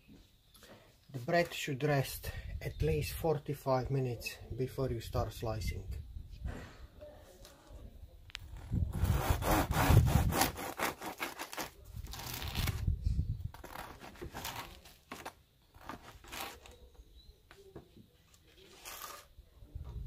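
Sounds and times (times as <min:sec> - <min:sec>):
bread knife sawing through crust: 0:08.9 - 0:12.4.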